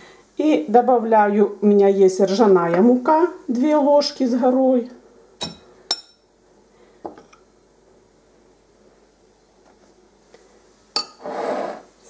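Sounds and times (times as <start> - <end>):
metal spoon clinking on glass: 11.0 - 11.2.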